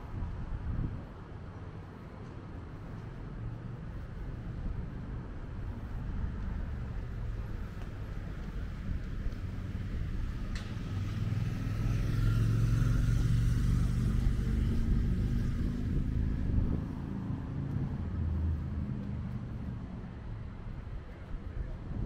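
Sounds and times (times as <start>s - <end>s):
vehicle passing: 5.7s - 20.7s.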